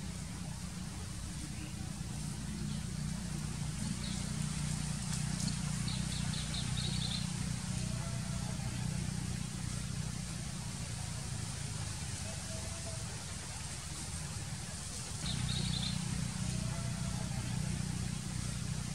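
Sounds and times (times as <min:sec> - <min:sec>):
steady low rumble: 0:00.0 - 0:18.9
bird chirping: 0:01.4 - 0:07.5, 0:15.2 - 0:16.8.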